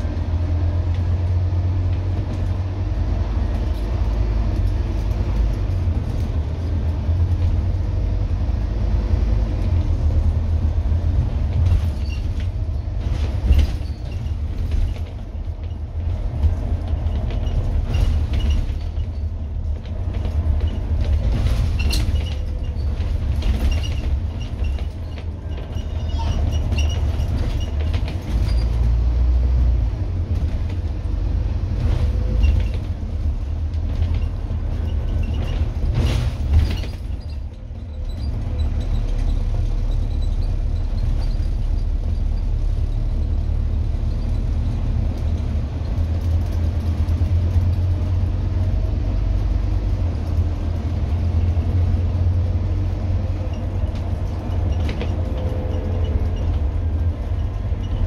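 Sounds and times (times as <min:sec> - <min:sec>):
bus diesel engine rumble: 0:00.0 - 0:58.0
bus body knocks and rattles: 0:09.4 - 0:58.0.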